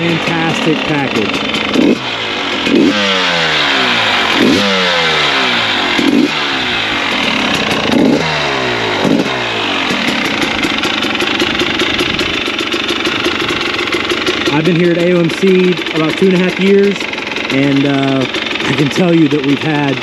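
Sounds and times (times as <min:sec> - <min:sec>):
two-stroke engine revving and idling: 0:00.0 - 0:20.0.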